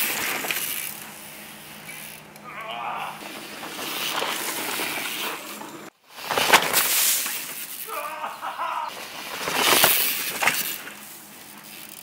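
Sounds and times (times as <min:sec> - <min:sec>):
bike tyres hissing on dirt: 0:00.0 - 0:12.0
tyres crunching in dirt: 0:00.0 - 0:12.0.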